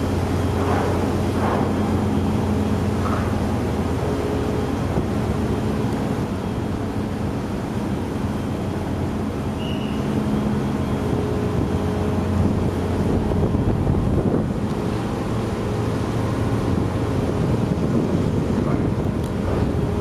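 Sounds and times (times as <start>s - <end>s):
ship engines droning: 0.0s - 20.0s
wind on microphone: 11.0s - 20.0s.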